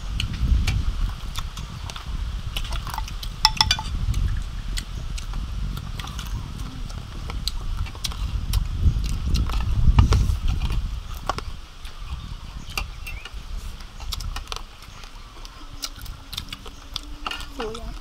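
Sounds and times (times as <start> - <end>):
crispy food chewing: 0.2 - 3.4, 4.1 - 18.0
spoons clinking on plates: 3.0 - 4.0.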